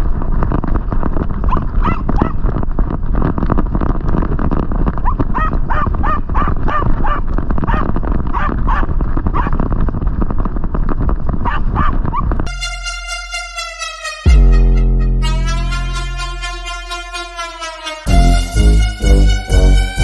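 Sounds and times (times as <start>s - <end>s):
dog barking in high yelps: 1.5s - 2.4s, 5.0s - 9.5s, 11.4s - 12.2s
music: 12.5s - 20.0s.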